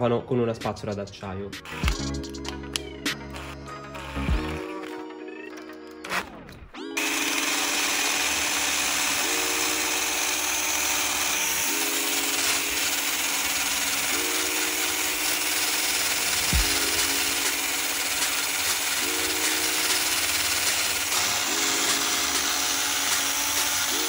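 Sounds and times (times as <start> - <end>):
drill wire brush scratching metal: 7.0 - 24.0.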